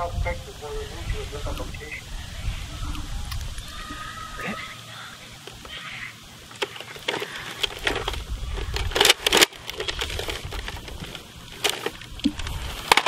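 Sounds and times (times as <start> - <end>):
toy rifle mechanical clicks: 5.4 - 13.0.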